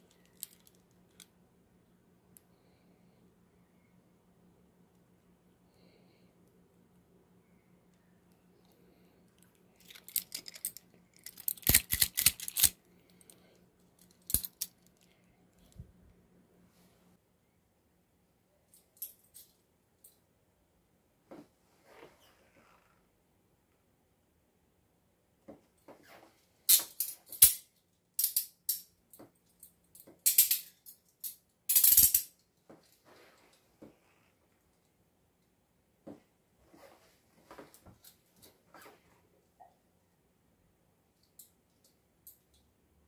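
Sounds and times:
handcuff clinking and clicking: 0.1 - 1.3, 9.8 - 13.4, 14.0 - 15.1, 26.7 - 32.4.

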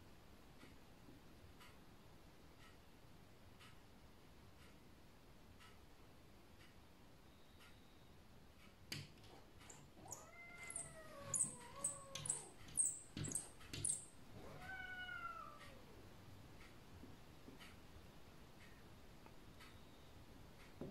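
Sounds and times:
cat scratching glass clicks: 8.9 - 14.1
cat meowing angrily: 14.4 - 15.8.

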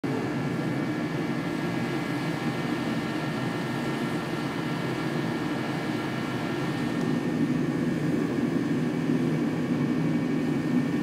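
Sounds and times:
riding mower engine idling: 0.1 - 11.0.

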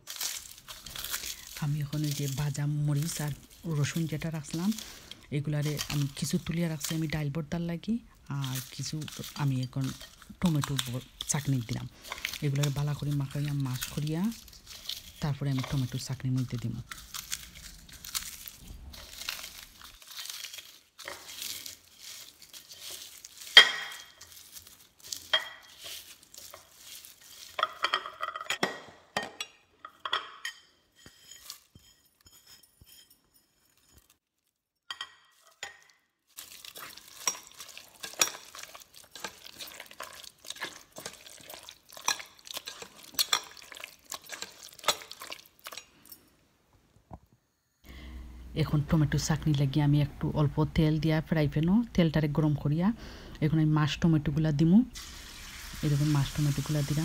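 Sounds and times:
chillies crackling and crumbling: 0.0 - 46.9, 47.8 - 57.0
clinks against plate and pot: 27.6 - 34.0.

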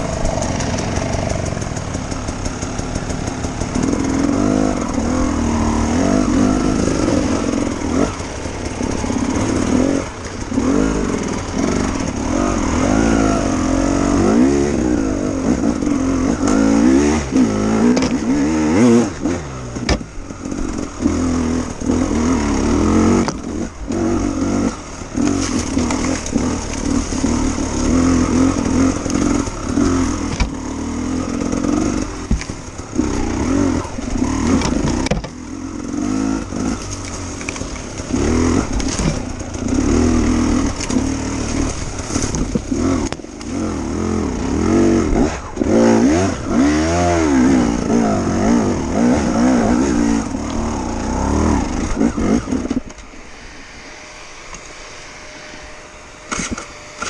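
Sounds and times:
two-stroke motorcycle engine revving: 0.0 - 57.0.

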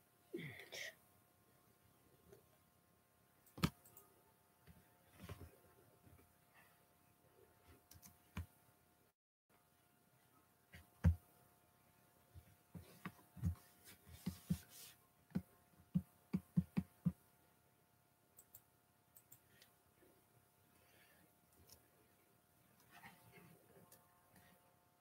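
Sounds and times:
faint clicks: 18.4 - 19.7.

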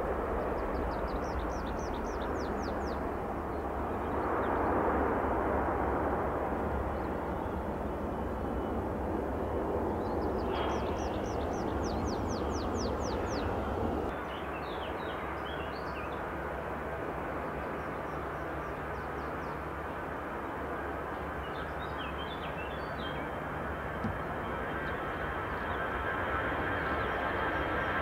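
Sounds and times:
jet engine rumble: 0.0 - 28.0
birds singing: 0.4 - 4.6, 6.9 - 16.3, 17.4 - 20.1, 20.7 - 26.0.

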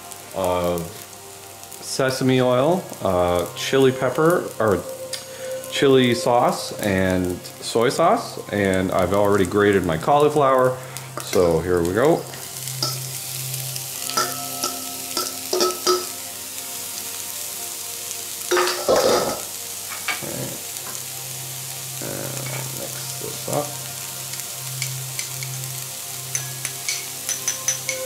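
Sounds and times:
vegetables sizzling in frying pan: 0.0 - 28.0
utensils knocking and scraping pan: 14.1 - 16.2, 18.5 - 20.2, 26.3 - 28.0.

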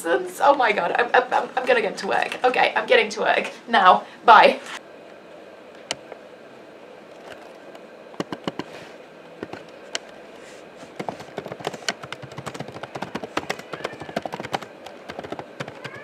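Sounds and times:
laptop keyboard typing: 8.2 - 8.7, 9.4 - 10.1, 10.9 - 16.0.

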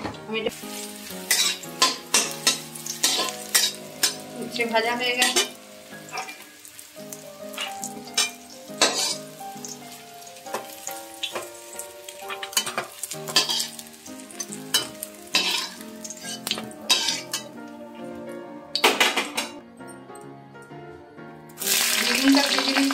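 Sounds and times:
vegetables sizzling in oil: 0.5 - 17.7, 21.6 - 22.9
metal spatula scraping pan: 0.8 - 6.5, 7.5 - 9.3, 12.2 - 13.8, 14.4 - 17.6.

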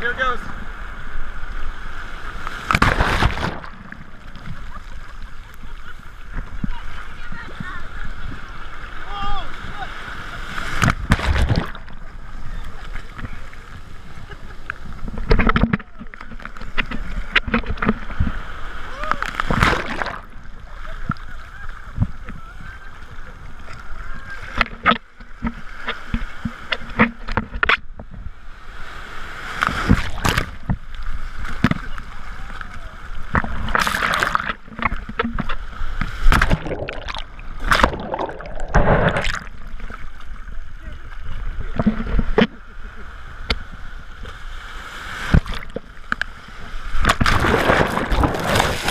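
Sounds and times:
muffled underwater rush: 0.0 - 48.9
breaking wave splashing: 1.3 - 15.0, 18.0 - 24.8, 31.2 - 40.3, 46.4 - 48.9
sharp water splashes: 2.3 - 4.5, 10.5 - 12.2, 19.2 - 20.6, 33.3 - 40.3, 46.8 - 48.9
muffled underwater gurgling: 36.3 - 39.5.

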